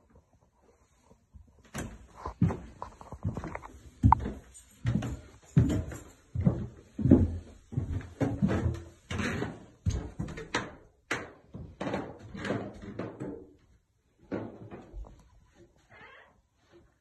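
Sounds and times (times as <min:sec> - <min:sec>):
footsteps on carpeted stairs: 0:01.4 - 0:10.7.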